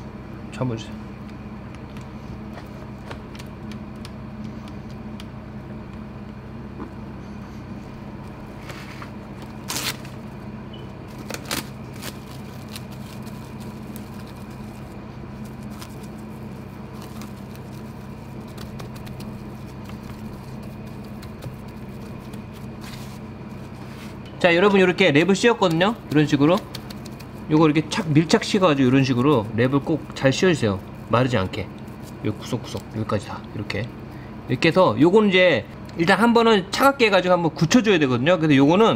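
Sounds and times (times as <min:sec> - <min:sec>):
steady low hum: 0:00.0 - 0:38.9
plastic cling wrap crinkling: 0:11.1 - 0:23.6.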